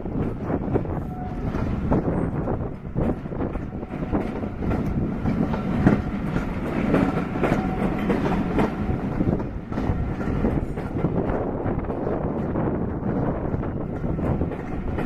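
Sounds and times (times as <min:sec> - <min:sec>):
train rumble: 0:00.0 - 0:15.0
train wheels clattering over rail joints: 0:00.0 - 0:15.0.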